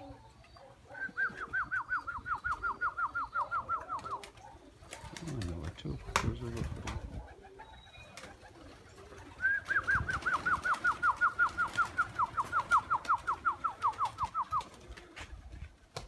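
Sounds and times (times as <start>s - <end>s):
bird whistling call: 0.9s - 4.2s, 9.4s - 14.6s.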